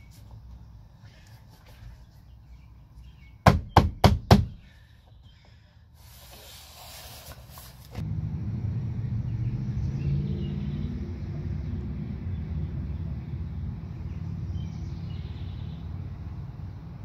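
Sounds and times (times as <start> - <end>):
low steady rumble: 7.9 - 17.0.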